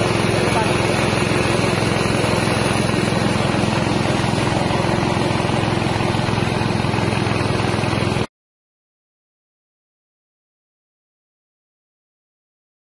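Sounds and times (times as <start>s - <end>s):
small engine running a rice mill: 0.0s - 8.3s.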